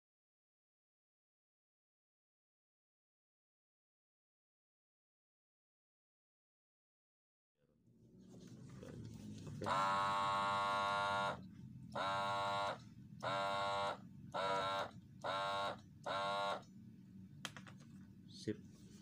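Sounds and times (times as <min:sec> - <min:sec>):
small water pump motor whining: 0:08.7 - 0:16.7.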